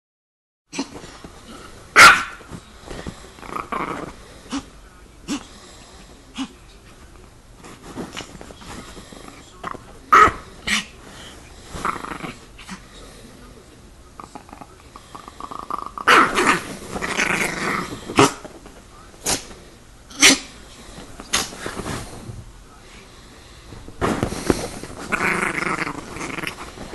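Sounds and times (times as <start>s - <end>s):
small dog yapping: 2.0s - 2.4s, 20.1s - 20.5s
small dog growling: 3.3s - 4.7s, 11.7s - 12.8s, 14.2s - 18.4s, 25.0s - 26.9s.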